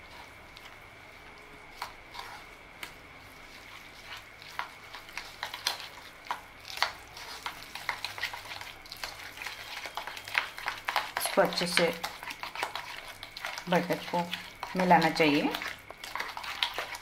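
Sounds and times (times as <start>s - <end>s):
spatula scraping plastic bowl: 1.8s - 2.5s.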